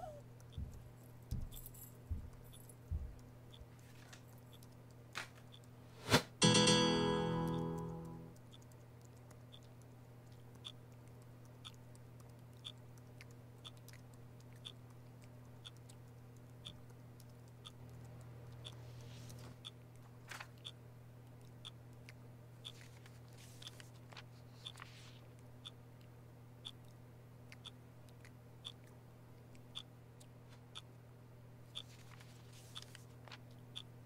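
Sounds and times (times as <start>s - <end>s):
low room hum: 0.0s - 34.0s
clock ticking: 6.4s - 18.8s, 26.6s - 26.9s, 27.5s - 27.8s, 28.6s - 28.9s.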